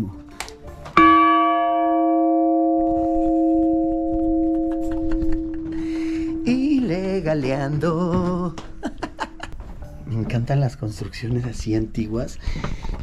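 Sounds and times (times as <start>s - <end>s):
church bell ringing: 1.0s - 7.4s.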